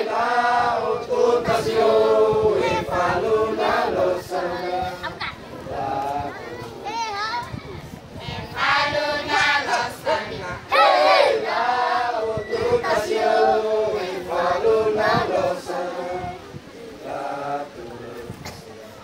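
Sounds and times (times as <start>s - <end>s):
girls singing together: 0.0s - 6.6s, 8.2s - 18.5s.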